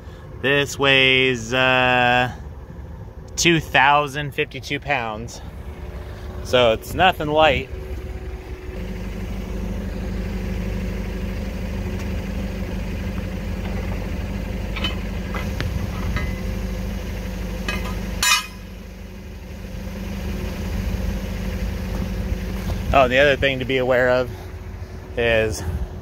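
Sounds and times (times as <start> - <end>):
forklift engine idling: 0.0 - 26.0
light metal clanks: 14.7 - 16.5, 17.6 - 18.7.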